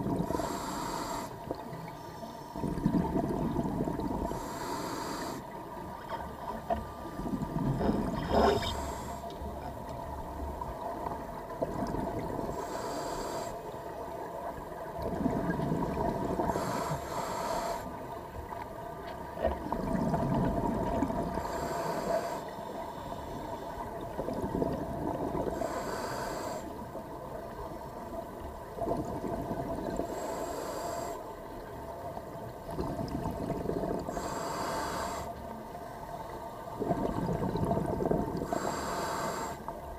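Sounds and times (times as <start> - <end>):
low rumble of bubbles: 0.0 - 0.4, 1.4 - 4.5, 5.6 - 12.6, 13.8 - 16.8, 18.0 - 21.6, 23.8 - 25.7, 27.0 - 30.2, 31.6 - 34.2, 35.6 - 38.6
regulator inhale hiss: 0.2 - 2.6, 4.2 - 5.6, 8.3 - 9.5, 12.5 - 13.8, 16.4 - 18.0, 21.3 - 23.8, 25.5 - 26.8, 30.0 - 31.4, 34.0 - 35.6, 38.4 - 39.8.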